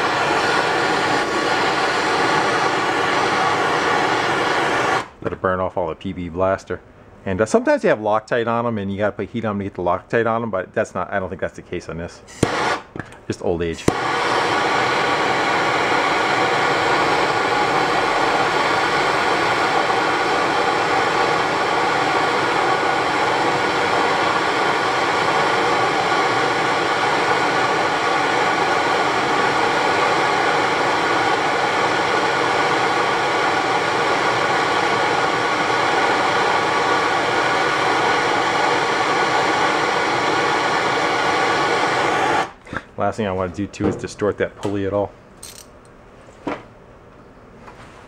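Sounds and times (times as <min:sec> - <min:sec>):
gas torch hissing: 0:00.0 - 0:05.2, 0:12.3 - 0:42.8.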